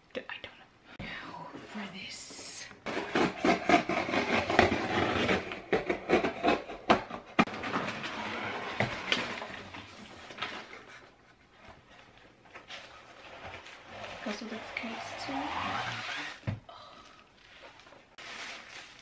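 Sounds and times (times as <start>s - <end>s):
plastic packaging crinkling: 17.4s - 19.0s.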